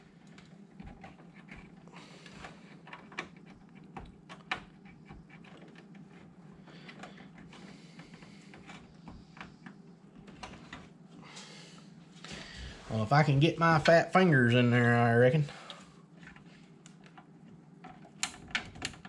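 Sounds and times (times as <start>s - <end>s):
steady low hum: 0.0s - 19.0s
cable clicks and rustles in metal case: 0.2s - 10.9s, 16.2s - 19.0s.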